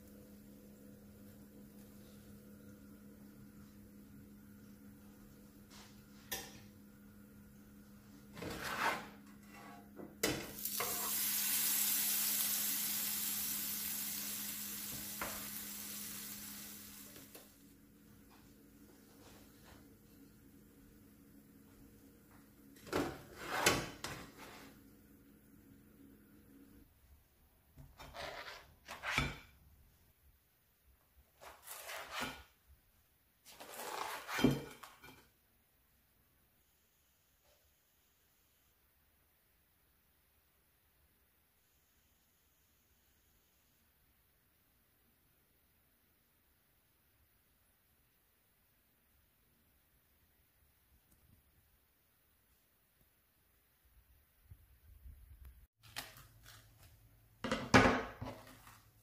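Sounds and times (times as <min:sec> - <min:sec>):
spatula scraping pan: 0:08.4 - 0:09.9, 0:27.9 - 0:29.5
sandwich sizzling in frying pan: 0:10.5 - 0:17.6.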